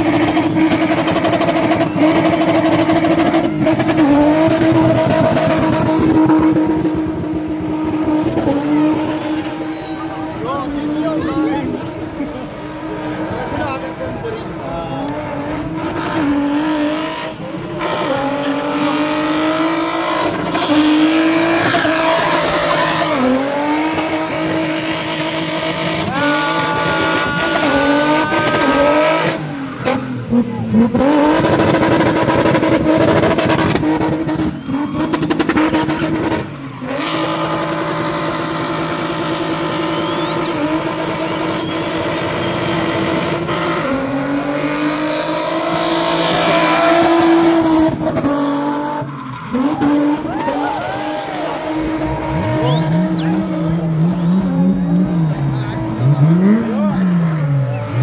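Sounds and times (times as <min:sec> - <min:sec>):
car engine at high revs: 0:00.0 - 0:58.0
tyres squealing: 0:20.7 - 0:23.4, 0:25.1 - 0:31.0.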